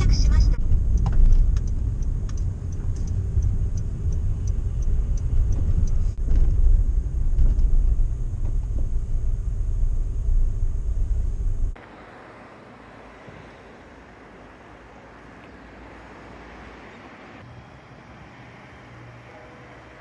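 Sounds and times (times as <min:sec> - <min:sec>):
van rumble from inside cabin: 0:00.0 - 0:12.9.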